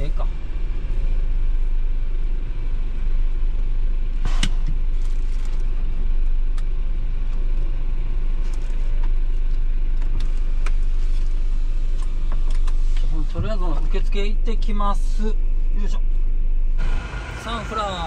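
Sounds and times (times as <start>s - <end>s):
diesel truck engine idling: 16.6s - 18.0s.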